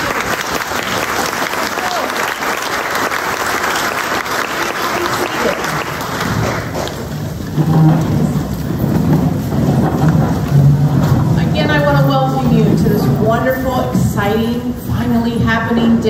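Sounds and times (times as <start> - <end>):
audience applauding: 0.0 - 7.6
people rustling in seats: 3.4 - 15.4.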